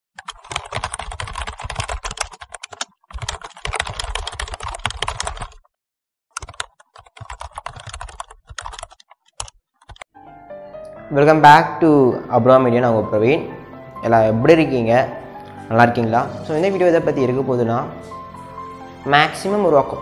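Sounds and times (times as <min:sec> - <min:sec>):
keyboard typing clicks: 0:00.2 - 0:05.6, 0:06.4 - 0:10.1.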